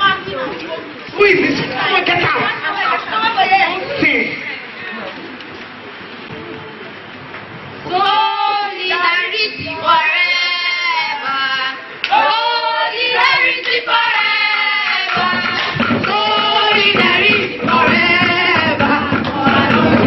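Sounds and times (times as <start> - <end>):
group singing in chorus: 7.8 - 20.0
handclapping: 14.8 - 20.0.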